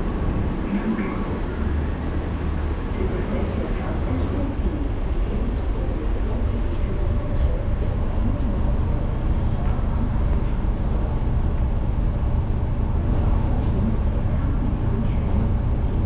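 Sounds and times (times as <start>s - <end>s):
train car rumble: 0.0s - 16.0s.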